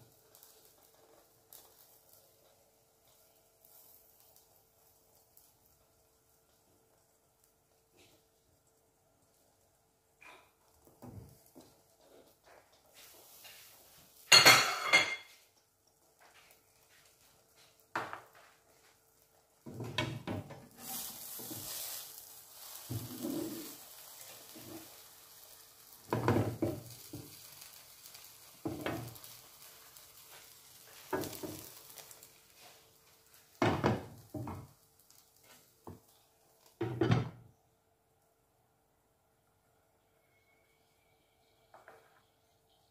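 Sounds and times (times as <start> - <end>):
faint sizzle: 0.0 - 42.9
utensil scraping frying pan: 19.7 - 32.8.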